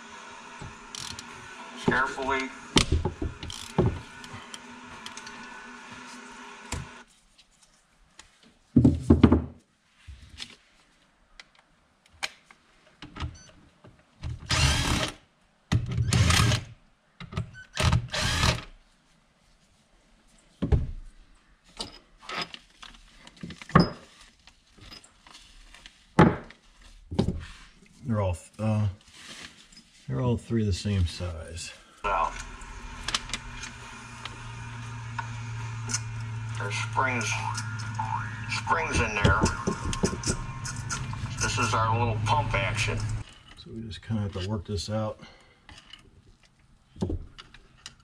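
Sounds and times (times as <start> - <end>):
power gun motor whirring: 0.6 - 1.8, 2.6 - 7.0, 14.5 - 15.2, 16.1 - 16.7, 17.8 - 18.7, 32.2 - 38.2.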